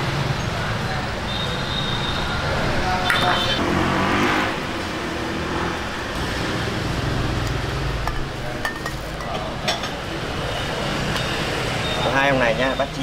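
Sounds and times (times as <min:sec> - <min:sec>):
busy restaurant din: 0:06.2 - 0:13.0
bowls and utensils clinking: 0:08.0 - 0:10.0.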